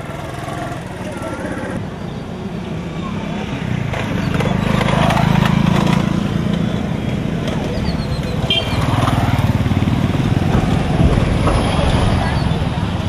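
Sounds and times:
motorcycle engine passing by: 3.8 - 13.0.

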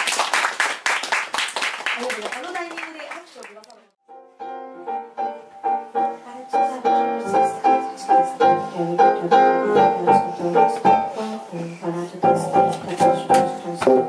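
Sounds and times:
piano repeated chords: 4.0 - 11.4, 12.2 - 14.0.

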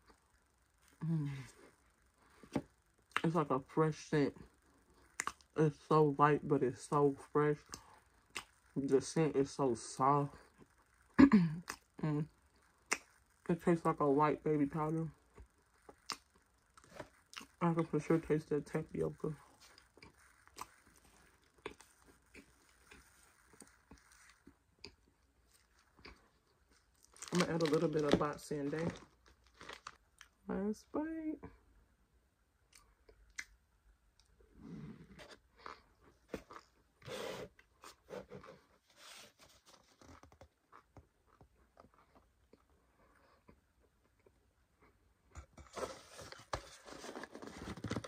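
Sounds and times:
person chewing: 4.6 - 5.5, 7.6 - 8.8, 10.5 - 13.5, 15.2 - 17.6, 19.5 - 30.4, 35.0 - 38.7.

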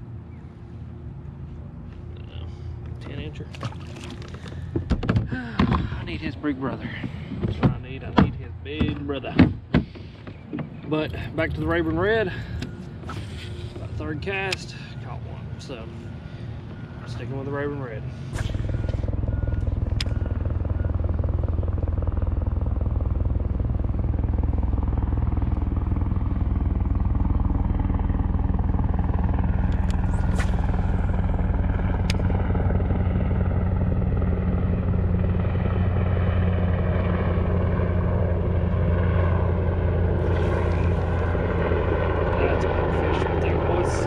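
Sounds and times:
motor droning: 18.1 - 44.0.

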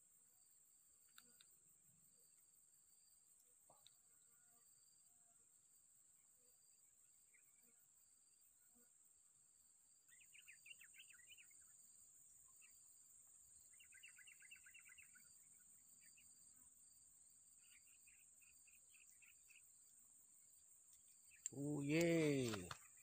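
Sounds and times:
bird chirps: 10.1 - 11.8, 13.7 - 15.4.

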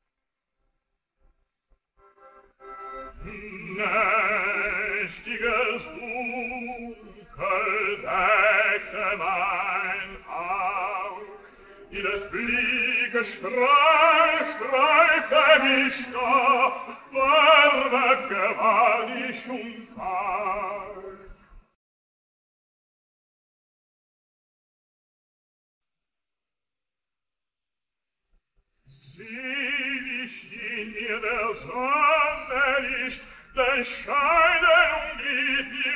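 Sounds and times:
operatic tenor singing: 2.6 - 21.3, 29.0 - 35.9.

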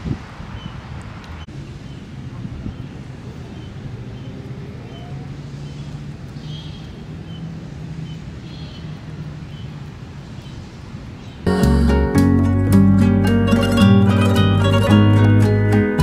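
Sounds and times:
wind noise on microphone: 0.0 - 1.5, 2.3 - 3.1.

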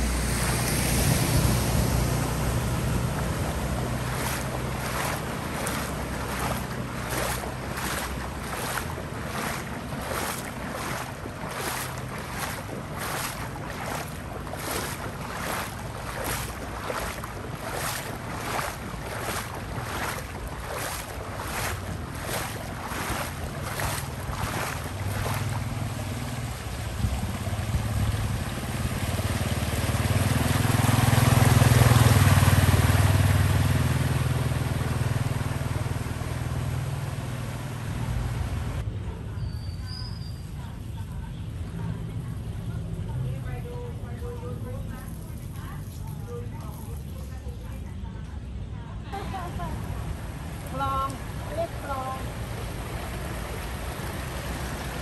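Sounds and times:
footsteps wading through water: 0.0 - 38.8, 49.1 - 55.0
motorcycle engine hum: 0.0 - 38.8
water hissing off tyres: 0.0 - 38.8.

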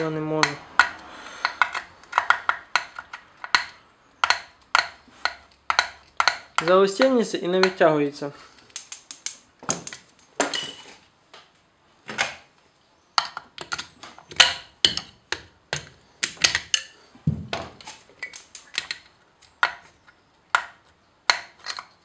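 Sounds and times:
metal tools knocking and scraping: 9.7 - 11.0, 21.3 - 22.0.

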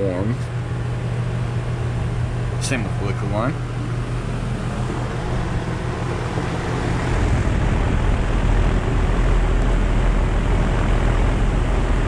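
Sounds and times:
condenser fan air rushing: 0.0 - 12.0
heat pump low hum: 0.0 - 12.0.

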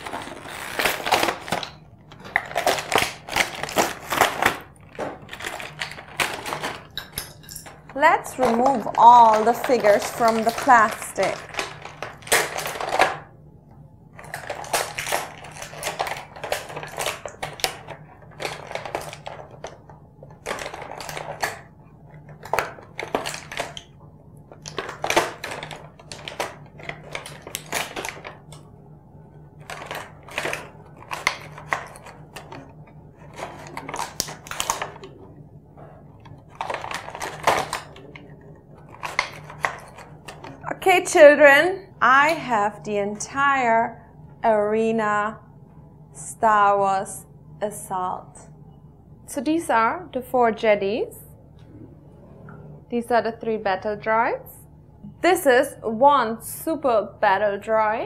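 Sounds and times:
plastic bags crinkling: 0.0 - 13.3, 14.2 - 23.9, 24.5 - 28.6, 29.6 - 35.2, 36.3 - 40.7.

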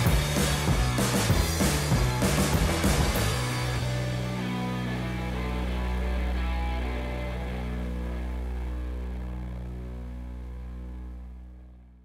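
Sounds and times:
drum hits: 0.0 - 4.0.

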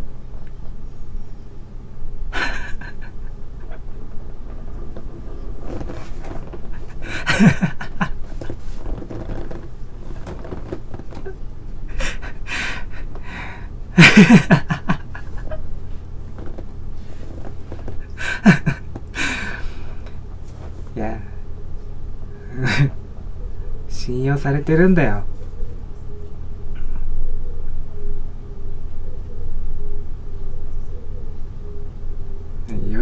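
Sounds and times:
low steady hum: 0.0 - 33.0
man laughing: 2.3 - 5.1, 5.7 - 9.4, 11.1 - 15.8, 18.0 - 19.8, 22.5 - 23.0.

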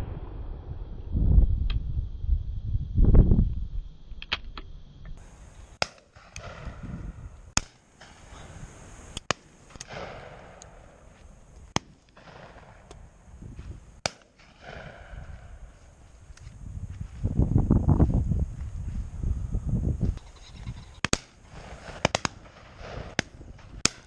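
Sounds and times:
shotgun shots with echo: 9.8 - 11.0, 14.0 - 15.7.

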